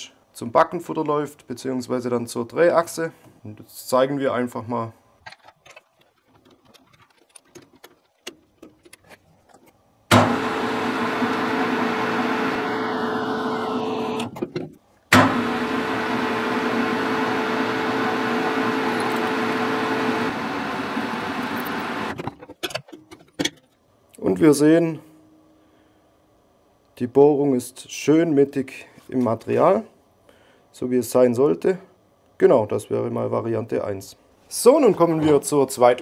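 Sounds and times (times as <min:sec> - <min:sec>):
drill boring into metal bar: 0:10.1 - 0:14.3, 0:15.1 - 0:22.2
metal lathe humming: 0:10.1 - 0:14.3, 0:15.1 - 0:22.2.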